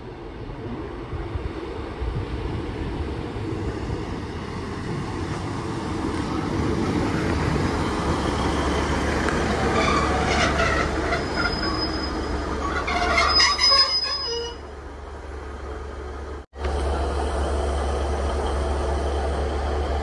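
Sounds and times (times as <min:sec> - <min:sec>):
diesel train engine humming: 0:00.0 - 0:20.0
train brakes squealing: 0:09.6 - 0:14.8.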